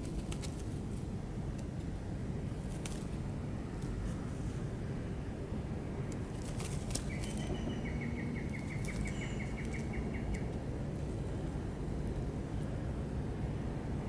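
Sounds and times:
steady low rumble: 0.0 - 14.0
bird chirping rapidly: 7.0 - 10.5.

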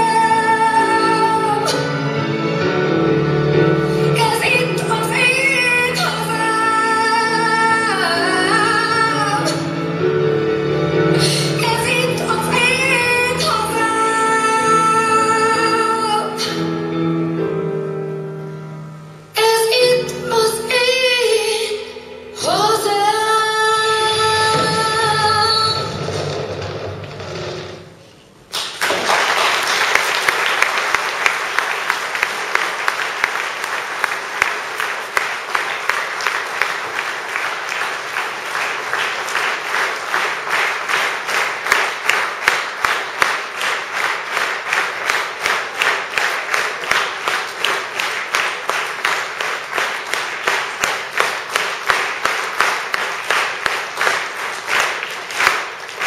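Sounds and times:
audience applauding: 28.5 - 56.0
rhythmic clapping in unison: 28.5 - 56.0.

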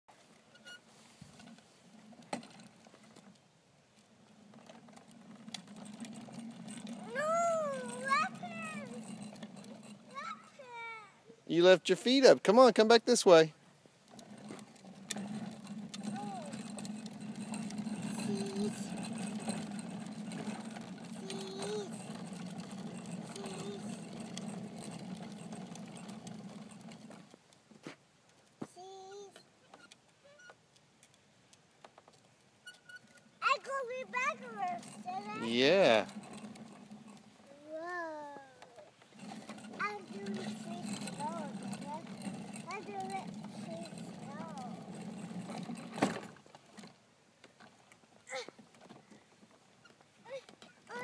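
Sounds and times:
plastic toy wheels rolling on asphalt: 0.1 - 51.0
child calling out: 7.0 - 9.0, 10.1 - 11.2, 18.2 - 18.8, 21.2 - 22.0, 37.6 - 38.8.

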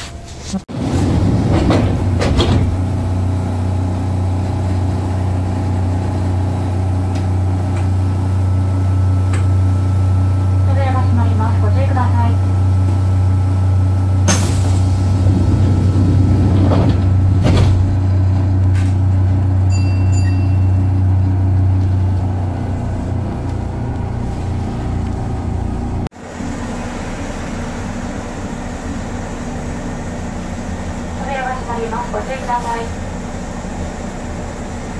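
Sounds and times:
train equipment low hum: 0.0 - 34.9.

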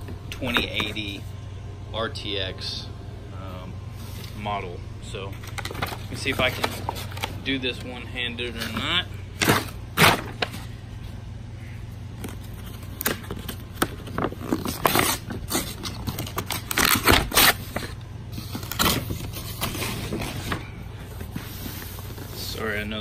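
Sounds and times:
paper ripping and crinkling: 5.3 - 7.8, 8.5 - 10.7, 12.2 - 20.8.

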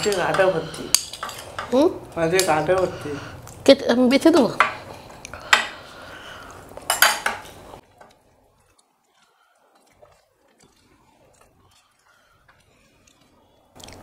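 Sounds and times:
metal spoon clinking on plates: 0.0 - 1.8, 6.9 - 8.1.

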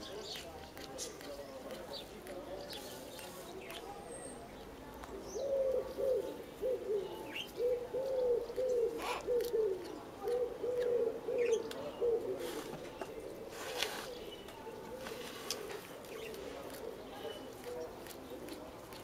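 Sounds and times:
cat chewing grass: 0.1 - 3.9, 15.0 - 19.0
dove cooing: 5.2 - 14.2.

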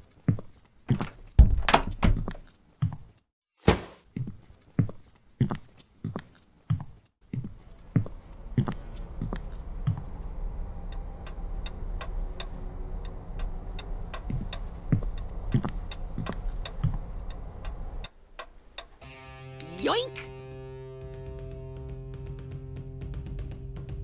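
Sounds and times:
footsteps thudding on a floor: 0.9 - 3.0, 3.6 - 4.3
steady low hum: 7.6 - 18.8.

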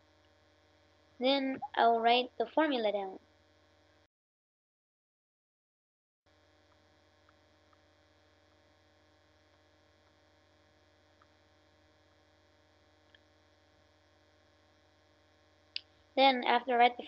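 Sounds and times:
faint electrical hum: 0.0 - 4.1, 6.3 - 17.0
faint ticks: 6.6 - 7.9.

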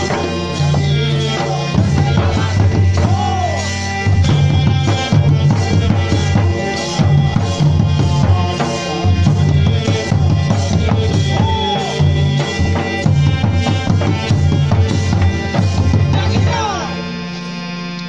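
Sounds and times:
hand drums beating rhythm: 0.0 - 17.3
melody with sliding notes: 0.0 - 18.0.

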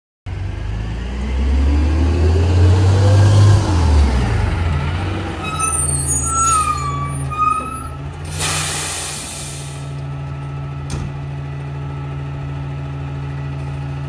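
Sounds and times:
engine whine: 0.3 - 14.0
garbage truck engine running: 3.7 - 14.0
brakes squealing: 4.6 - 10.0
air hiss: 8.3 - 9.9.

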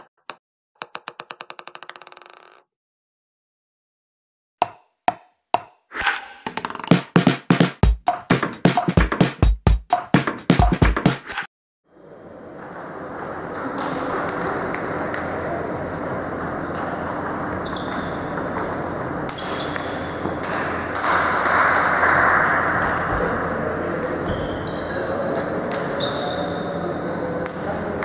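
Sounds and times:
table tennis balls clicking: 0.0 - 2.7, 6.4 - 7.1
sports hall background noise: 11.9 - 28.0.

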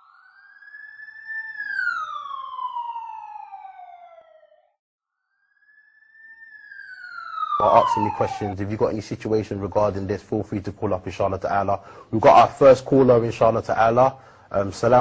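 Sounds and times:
siren wailing: 0.0 - 9.6.

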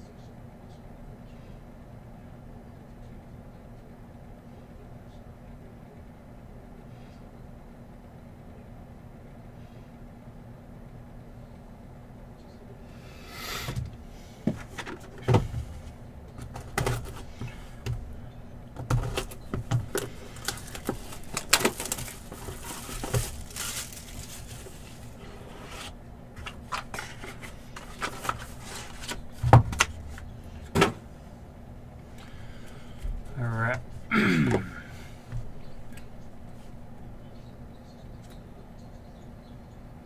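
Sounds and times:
card holders clicking and knocking: 18.8 - 22.4
plastic wrap crinkling and tearing: 19.0 - 25.2.

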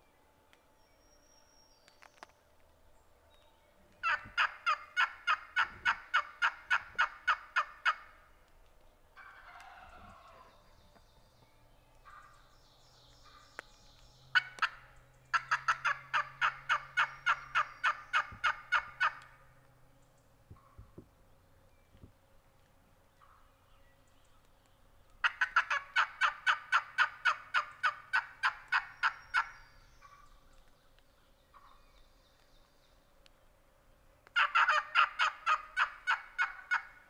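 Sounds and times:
rough turkey call: 4.0 - 8.3, 9.2 - 10.7, 12.0 - 12.5, 14.3 - 19.5, 25.2 - 30.5, 31.5 - 31.8, 34.3 - 37.0
turkey yelping: 4.0 - 8.3, 9.2 - 10.5, 12.0 - 12.3, 14.4 - 19.4, 25.2 - 30.4, 31.5 - 31.8, 34.3 - 37.0.

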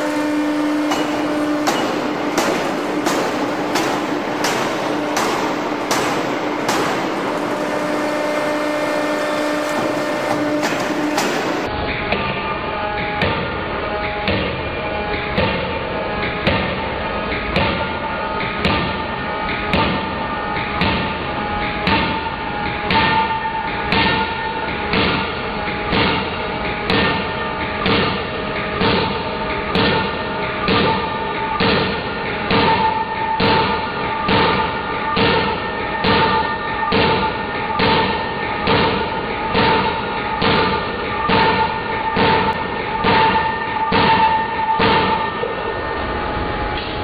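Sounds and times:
forging hammer thudding on steel: 0.0 - 12.3
forging hammer striking steel: 0.0 - 45.5
steady whining tone: 0.0 - 47.0.

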